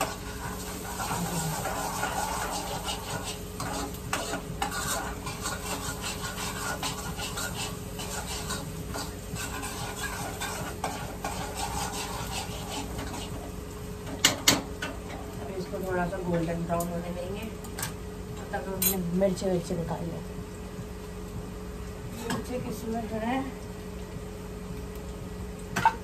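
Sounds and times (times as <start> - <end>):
spatula scraping pan: 0.0 - 15.4
onions sizzling in hot oil: 0.0 - 26.0.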